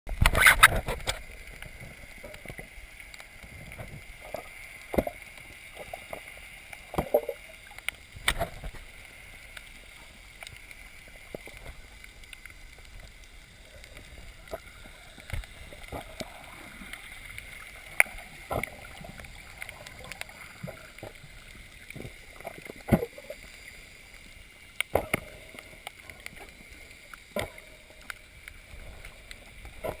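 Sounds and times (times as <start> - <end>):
underwater clicks and knocks: 6.9 - 8.9.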